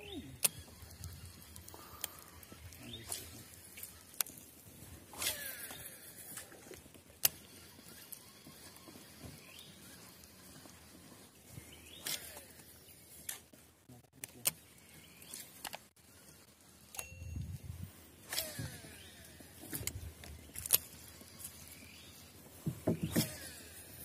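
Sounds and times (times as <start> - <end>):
sharp clicks: 0.0 - 4.4
faint outdoor background: 0.0 - 24.0
short bell-like chime: 17.0 - 17.6.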